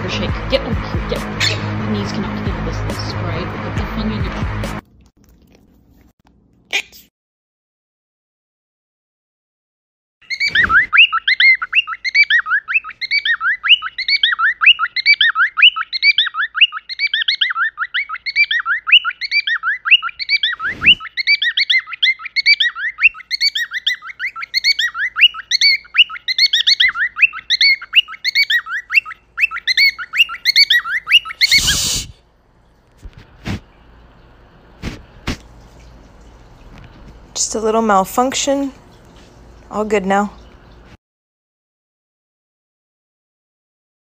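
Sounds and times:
cockatiel chirping and warbling: 1.2s - 1.7s, 10.2s - 32.1s.

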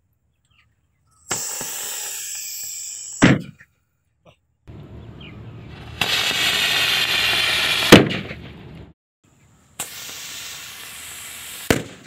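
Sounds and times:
rocket firework hissing: 1.2s - 3.2s, 5.7s - 8.8s, 9.8s - 12.0s
firework bang: 5.7s - 8.9s, 9.8s - 12.0s.

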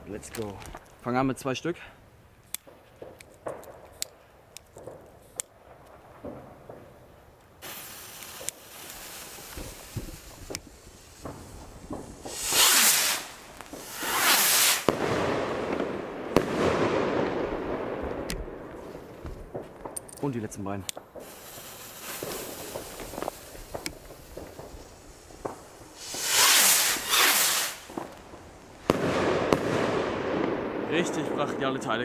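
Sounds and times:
lit fuse hissing: 7.6s - 14.9s, 21.2s - 28.9s
rockets whooshing: 7.6s - 32.0s.

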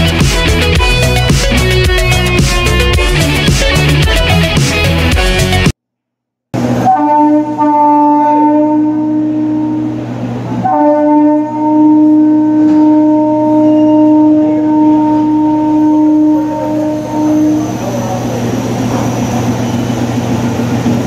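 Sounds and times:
low hum of moving train: 0.0s - 5.6s, 6.6s - 21.0s
train horn blasts: 6.6s - 18.3s.

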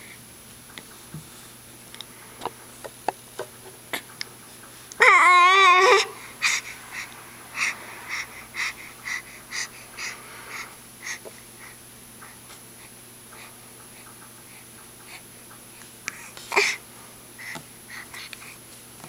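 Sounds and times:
baby squealing: 5.0s - 6.2s.

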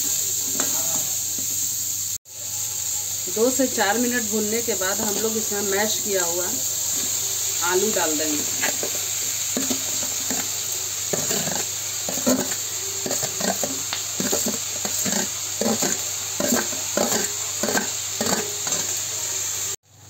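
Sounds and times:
peas sizzling in oil: 0.0s - 20.0s
metal skimmer scraping steel bowl: 11.1s - 19.0s.

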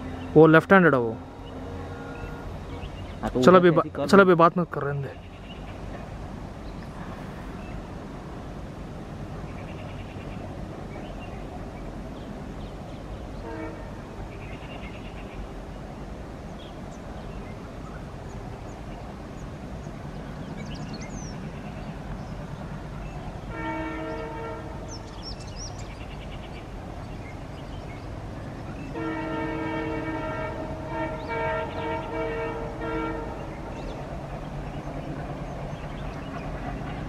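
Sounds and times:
locomotive air horn: 13.4s - 14.0s, 23.5s - 24.9s, 28.9s - 33.6s.

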